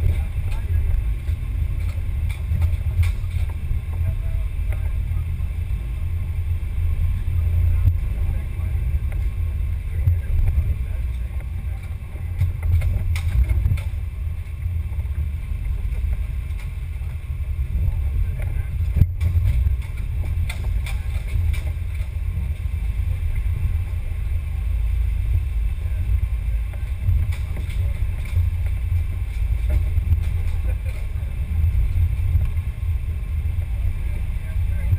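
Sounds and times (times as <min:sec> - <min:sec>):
rc car chassis rumbling: 0:00.0 - 0:34.9.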